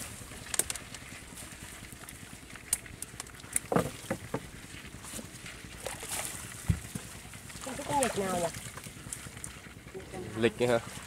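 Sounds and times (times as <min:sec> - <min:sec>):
heavier knocks on wooden boat: 0:03.7 - 0:04.4, 0:06.6 - 0:07.0.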